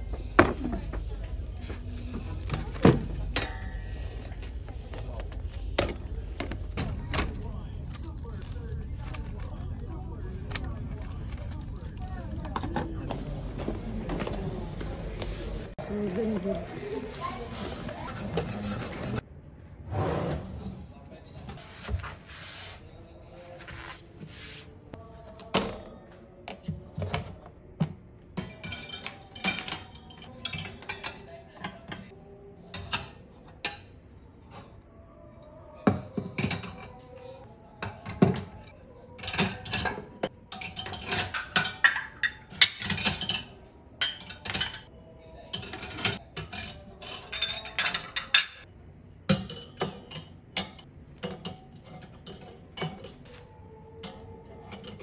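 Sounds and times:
dishes clinking in wire rack: 39.2s - 44.9s, 45.5s - 48.7s, 49.3s - 53.2s.

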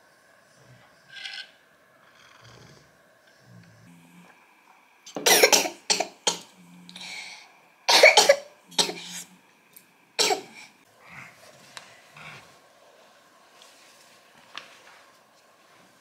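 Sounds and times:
woman coughing: 5.2s - 6.4s, 7.9s - 9.0s.

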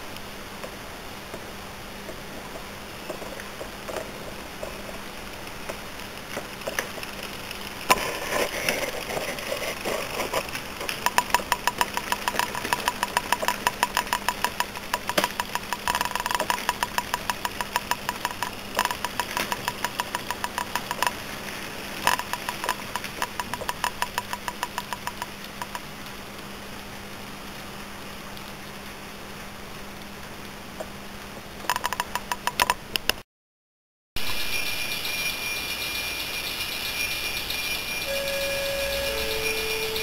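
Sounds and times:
model train wheels clicking: 5.6s - 21.2s, 22.0s - 25.8s.

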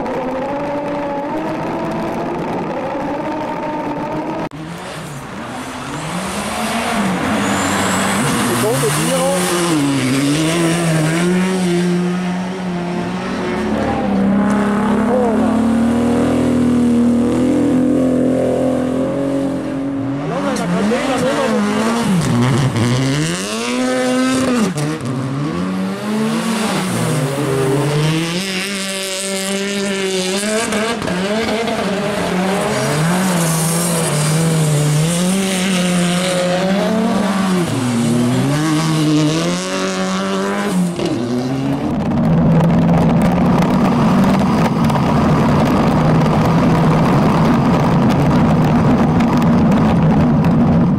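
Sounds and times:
rally car engines revving: 0.0s - 50.9s.

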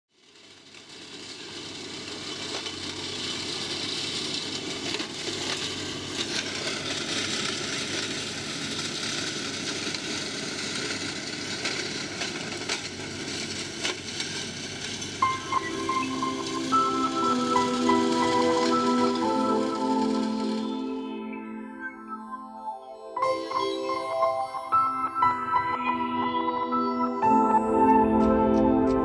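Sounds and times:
tractor and flail mower running: 0.1s - 21.4s.

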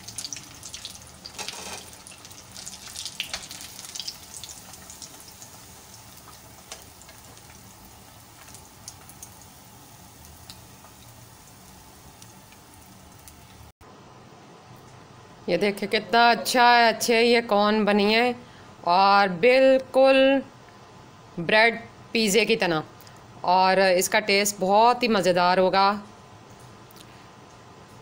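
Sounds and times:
food deep-frying in oil: 0.0s - 13.7s.

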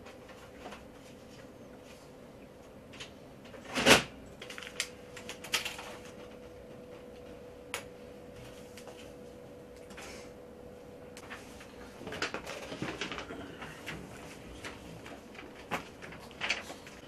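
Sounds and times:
faint steady hum: 0.0s - 17.0s
small clicks and rustles: 11.2s - 17.0s.

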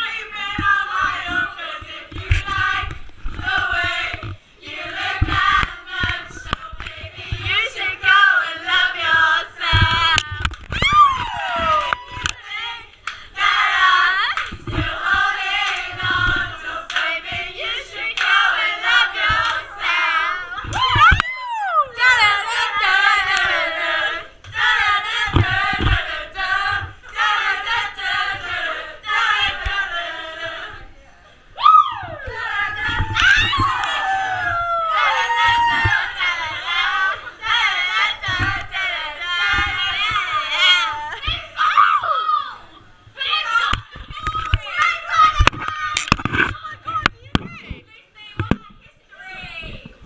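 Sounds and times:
women singing together: 0.0s - 42.0s, 42.6s - 50.0s
high falling whoop: 10.7s - 12.4s, 20.5s - 22.0s, 31.6s - 36.2s.

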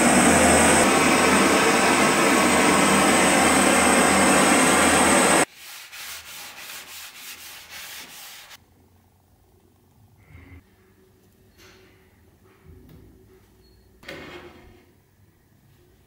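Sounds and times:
blowtorch hissing: 0.0s - 5.5s
hand rubbing wooden shaft: 5.6s - 8.6s.

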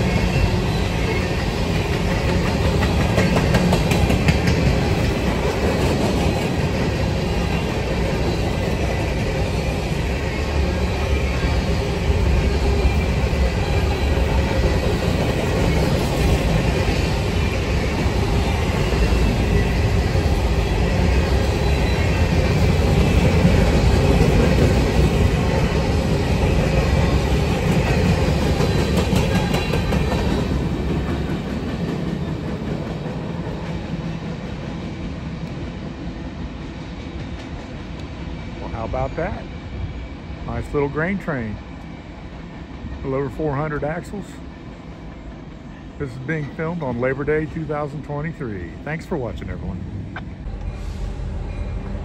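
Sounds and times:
wheels clicking on rails: 0.0s - 34.2s
freight train rumbling past: 0.0s - 52.0s.

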